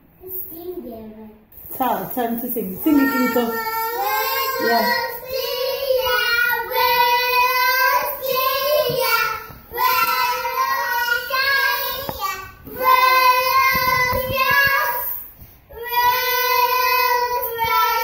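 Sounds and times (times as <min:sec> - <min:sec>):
child singing high notes: 0:02.9 - 0:15.2.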